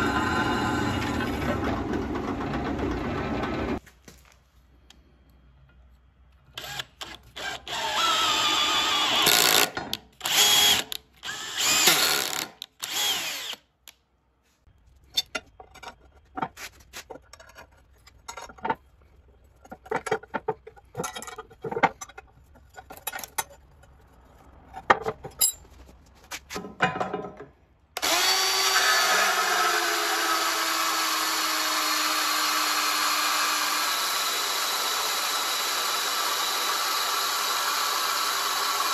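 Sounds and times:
band saw cutting steel: 0:00.0 - 0:03.8, 0:28.0 - 0:38.9
power drill bursts: 0:06.6 - 0:13.6, 0:28.0 - 0:38.9.

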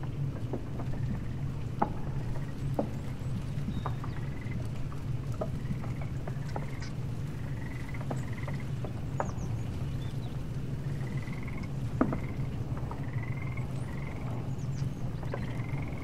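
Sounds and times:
low hum: 0:00.0 - 0:16.0
animal trilled calls: 0:03.7 - 0:04.7, 0:05.5 - 0:09.5, 0:10.8 - 0:16.0.

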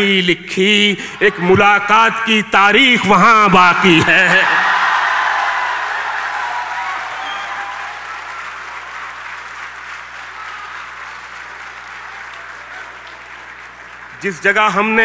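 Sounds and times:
audience applauding: 0:04.3 - 0:15.0.

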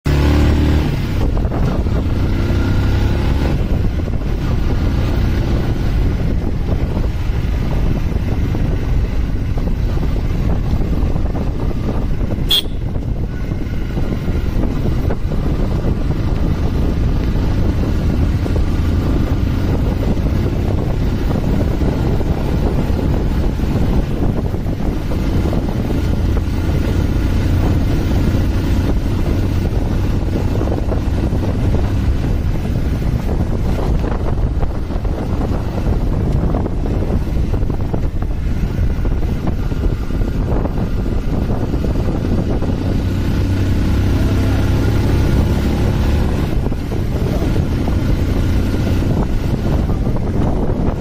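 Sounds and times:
motorcycle engine running: 0:00.0 - 0:51.0
wind buffeting microphone: 0:00.1 - 0:51.0
short sharp sound: 0:12.5 - 0:13.0.

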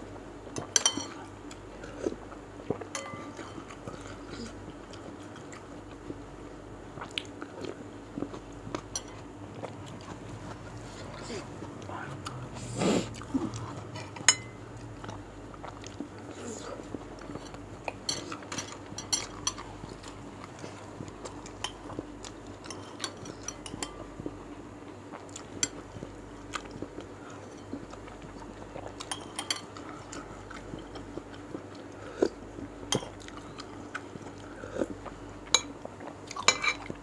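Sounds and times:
faint steady hum: 0:00.0 - 0:37.0
cutlery clinking against bowl: 0:00.6 - 0:01.2, 0:02.9 - 0:03.8, 0:14.0 - 0:14.6, 0:17.4 - 0:19.6, 0:22.6 - 0:24.0, 0:29.0 - 0:29.8, 0:36.4 - 0:36.9.

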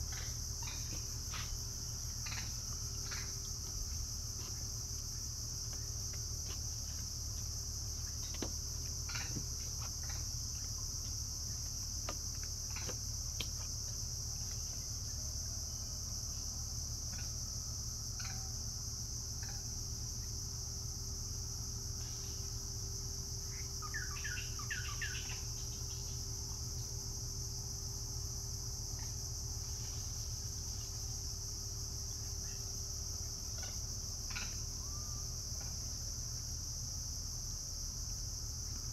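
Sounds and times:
insects chorus: 0:00.0 - 0:38.9
bird chirps: 0:23.8 - 0:25.4.

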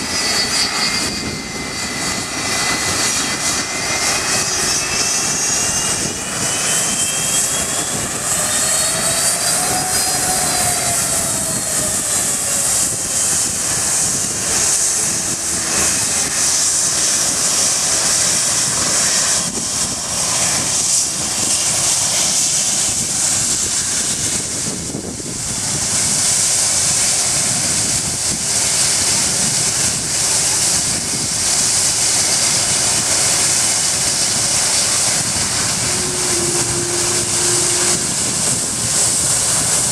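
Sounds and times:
jet engine whine: 0:00.0 - 0:39.9
jet engines rushing hiss: 0:00.0 - 0:39.9.

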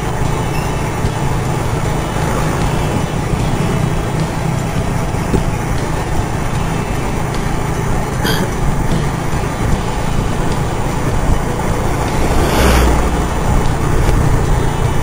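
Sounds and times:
scooter engine drone: 0:00.0 - 0:15.0
wind rush: 0:09.6 - 0:15.0.

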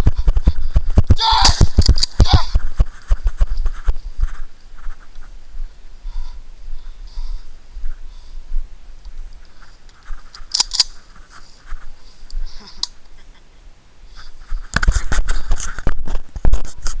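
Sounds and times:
camera handling rumble: 0:00.0 - 0:04.9, 0:09.1 - 0:11.8.

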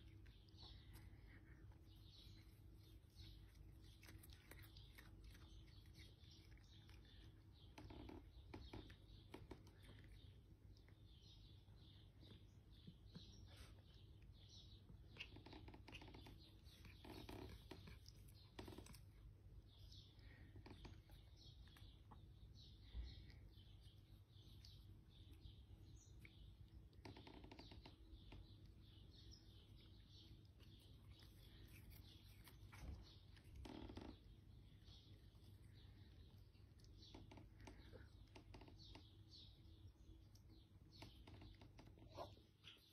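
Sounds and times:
cats chewing grass: 0:00.0 - 0:42.9
small birds chirping: 0:00.0 - 0:42.9.

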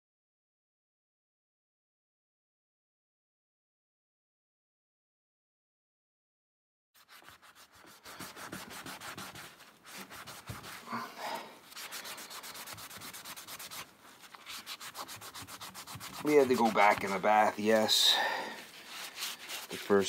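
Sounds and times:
scrubbing on steel chisel: 0:07.0 - 0:20.0.

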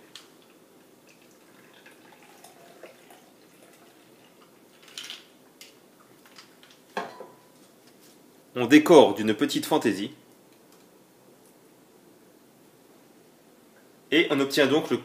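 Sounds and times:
liquid trickling: 0:00.2 - 0:05.0.

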